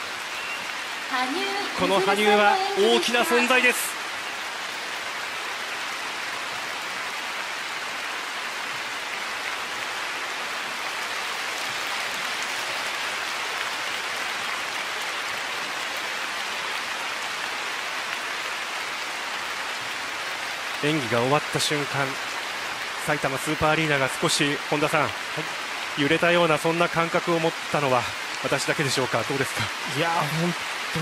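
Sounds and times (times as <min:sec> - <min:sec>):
crowd applauding: 0:01.1 - 0:03.9.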